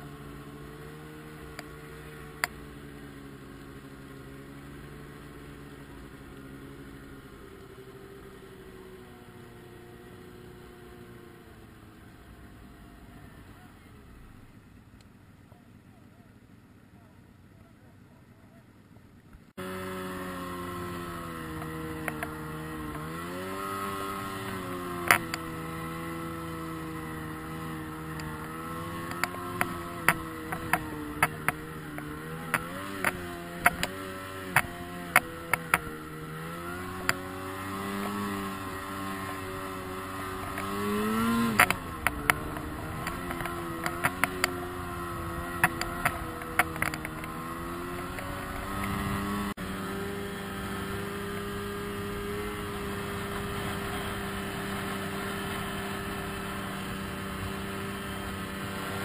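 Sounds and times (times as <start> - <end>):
snowmobile engine revving: 0.0 - 14.5, 19.5 - 59.0
clicks and knocks of sled bouncing: 21.3 - 25.5, 26.5 - 49.4.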